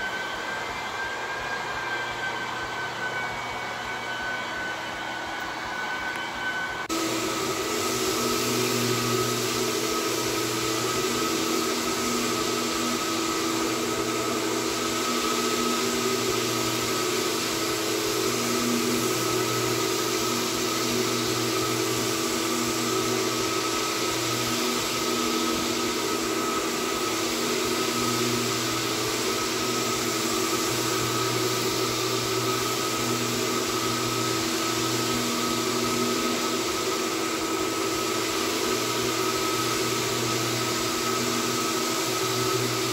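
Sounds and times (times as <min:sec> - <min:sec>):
floor machine motor drone: 0:00.0 - 0:42.9
vacuum suction hiss: 0:06.8 - 0:42.9.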